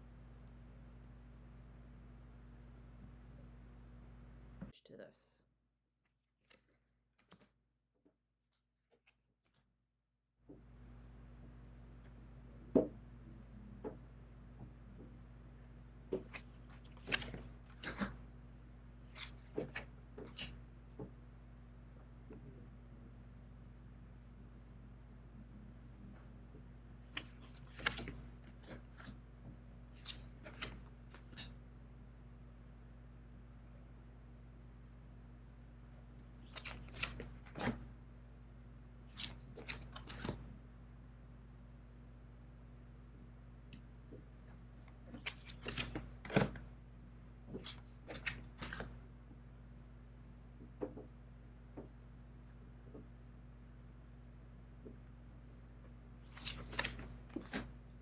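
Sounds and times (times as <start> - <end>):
cards slapping and sliding: 16.1 - 18.2, 19.1 - 20.6, 27.1 - 29.2, 29.9 - 31.6, 36.4 - 37.8, 39.1 - 40.5, 45.1 - 46.6, 47.5 - 49.0, 56.3 - 57.8
cards sliding and tapping: 56.3 - 57.7.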